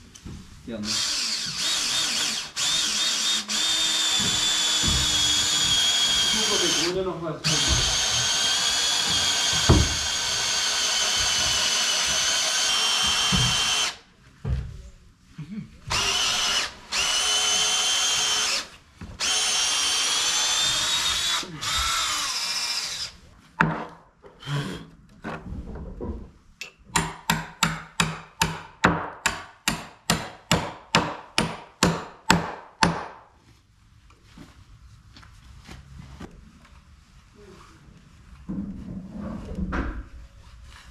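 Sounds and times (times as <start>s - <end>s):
drill boring into wood: 0.8s - 14.0s, 15.9s - 23.2s, 24.4s - 24.9s.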